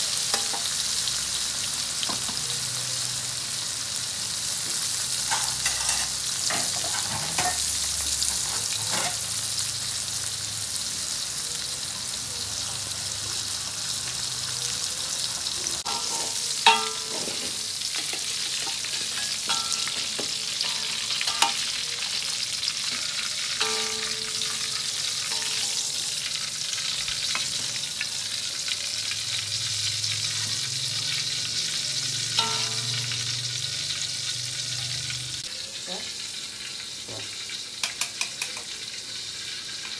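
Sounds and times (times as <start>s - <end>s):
oil sizzling in a wok: 0.0s - 39.9s
metal spatula knocking on wok: 15.8s - 17.2s, 23.6s - 25.8s, 32.4s - 33.2s.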